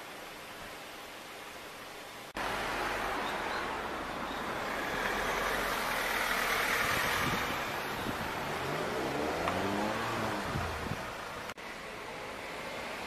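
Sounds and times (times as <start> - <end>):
vehicle engine and road noise: 0.0 - 13.0
wind on microphone: 6.8 - 11.2.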